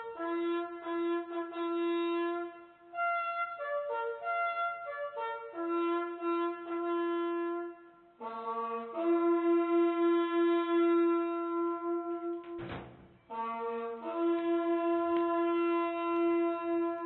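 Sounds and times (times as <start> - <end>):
bugle playing long notes: 0.0 - 17.0.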